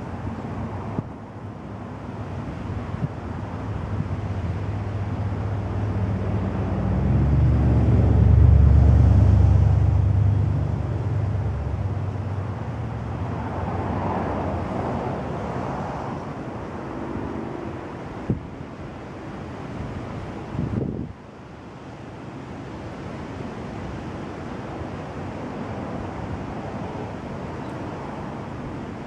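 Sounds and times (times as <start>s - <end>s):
passing vehicle engine rumble: 0.0s - 18.4s
wind noise: 0.0s - 22.0s.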